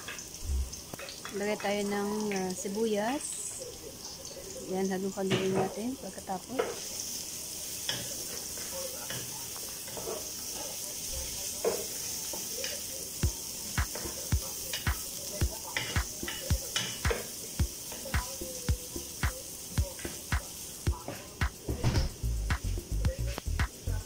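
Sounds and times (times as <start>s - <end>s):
onion sizzling in hot oil: 0.0s - 24.0s
background music with low beat: 13.2s - 24.0s.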